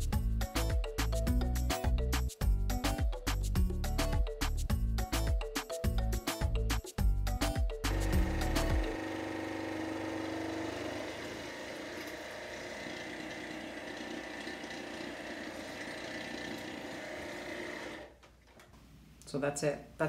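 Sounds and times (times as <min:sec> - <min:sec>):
water flosser pump running: 0:07.9 - 0:18.2.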